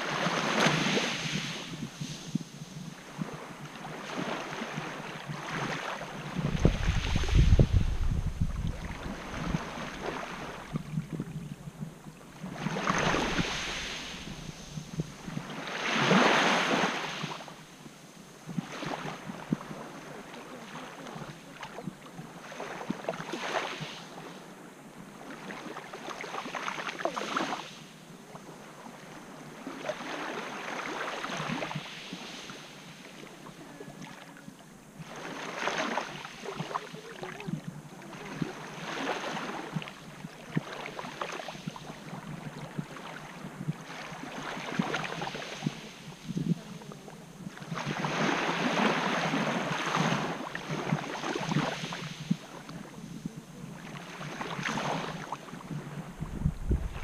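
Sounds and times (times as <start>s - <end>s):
small waves lapping on shore: 0.0s - 57.0s.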